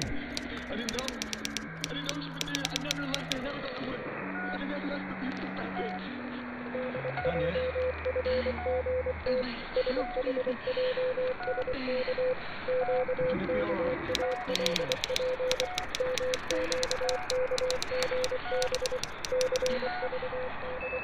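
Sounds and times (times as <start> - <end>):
sharp crackling clicks: 0.0 - 3.5, 14.1 - 19.8.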